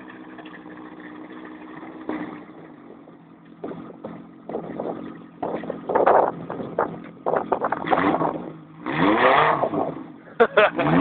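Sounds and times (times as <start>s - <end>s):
boat engine idling: 0.0s - 8.8s
wind noise on microphone: 3.7s - 8.6s.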